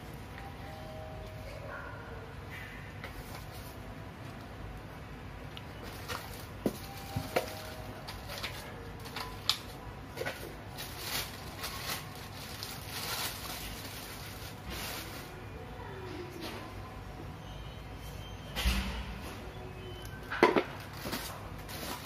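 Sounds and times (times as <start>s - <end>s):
plastic wrapping crinkling: 5.7s - 15.6s, 20.4s - 22.0s.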